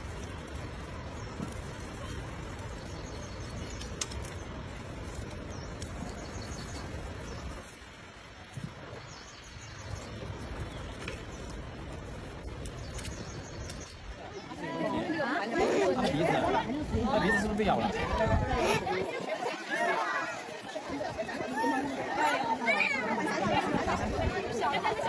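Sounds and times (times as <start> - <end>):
low forest rumble: 0.0 - 19.5.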